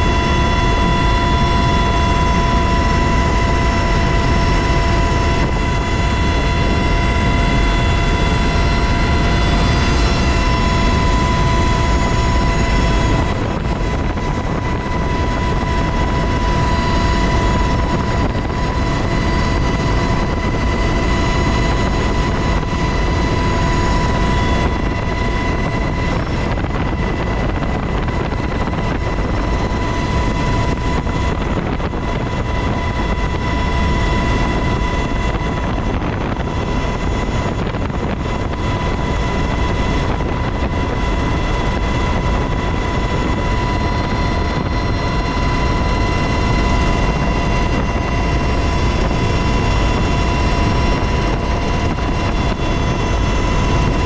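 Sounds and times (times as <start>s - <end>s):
helicopter cabin roar: 0.0s - 54.0s
high-pitched whine: 0.0s - 54.0s.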